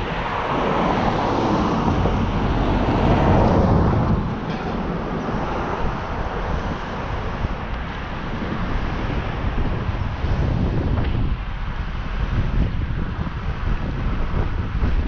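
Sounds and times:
road and passing traffic noise: 0.0s - 15.0s
wind rushing over microphone: 0.0s - 15.0s.

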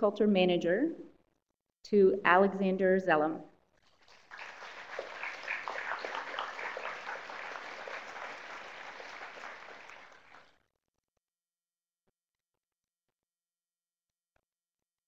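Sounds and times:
audience applauding: 4.0s - 10.5s.

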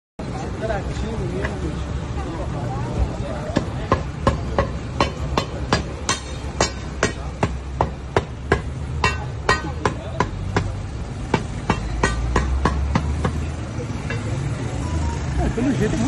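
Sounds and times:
metal bars clanking on manhole cover: 3.5s - 14.5s.

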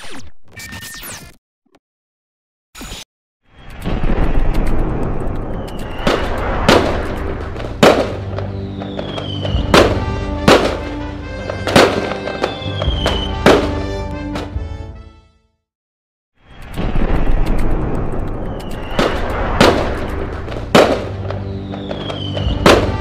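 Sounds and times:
sharp bangs: 3.7s - 14.6s, 16.5s - 23.0s
falling whistles: 5.5s - 6.3s, 8.4s - 9.9s, 12.2s - 13.4s, 18.4s - 19.2s, 21.3s - 23.0s.

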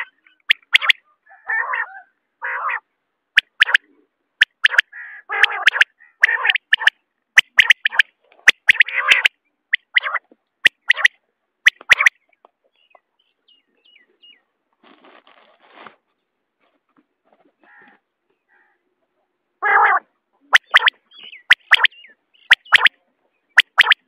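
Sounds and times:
quail calling: 0.0s - 2.8s, 3.4s - 11.1s, 11.7s - 12.2s, 19.6s - 23.0s, 23.6s - 24.0s
faint soft chirps: 20.4s - 24.0s.

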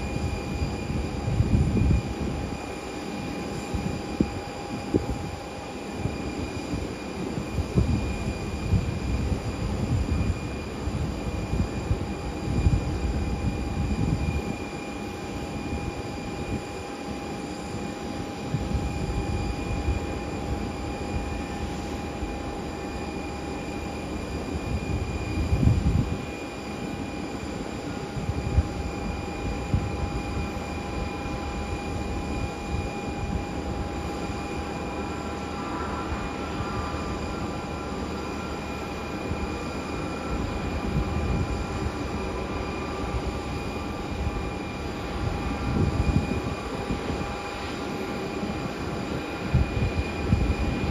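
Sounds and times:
distant jet engines whining: 0.0s - 50.9s.

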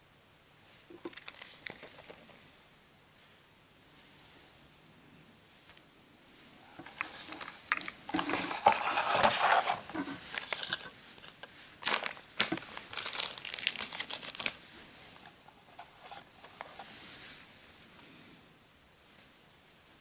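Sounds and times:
plastic packaging crinkling: 0.9s - 2.4s, 6.8s - 14.6s
cardboard box handling: 6.9s - 10.8s.

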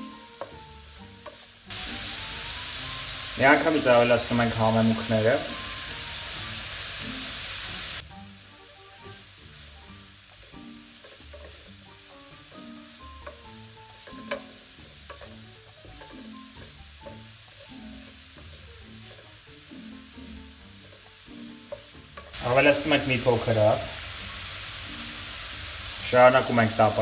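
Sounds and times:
wooden spatula stirring: 0.0s - 1.6s, 10.3s - 12.5s, 13.1s - 19.7s, 20.3s - 22.4s
carrots sizzling in frying pan: 0.0s - 27.0s.

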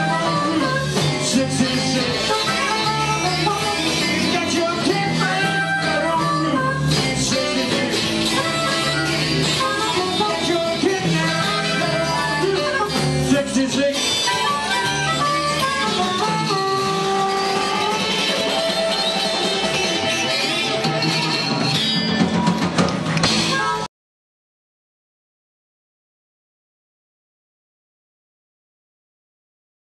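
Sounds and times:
saxophone: 0.0s - 21.9s
harmonica: 0.0s - 22.2s
bass guitar: 0.0s - 23.9s
drums: 0.0s - 23.9s
electric guitars: 0.0s - 23.9s.

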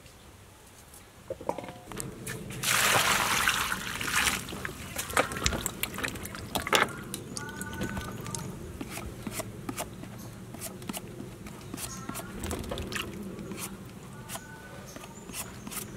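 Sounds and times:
water splashing in a metal bowl: 2.5s - 8.4s.

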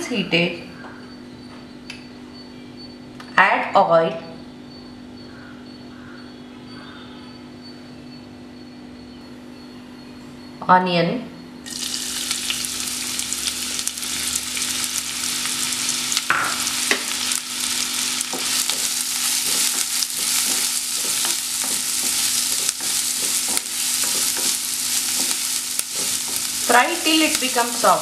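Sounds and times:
onions sizzling in oil: 11.6s - 28.0s.

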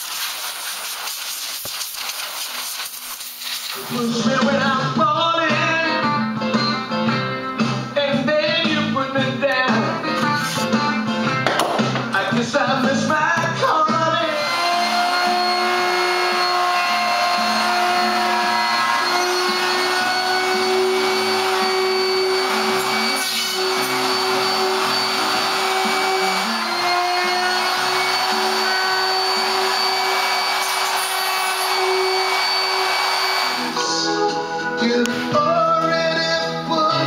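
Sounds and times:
router cutting wood: 14.2s - 33.9s.

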